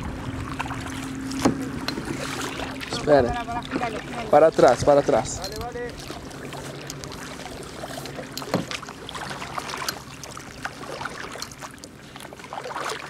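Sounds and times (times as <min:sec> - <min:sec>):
paddle splashes and drips: 0:00.0 - 0:13.0.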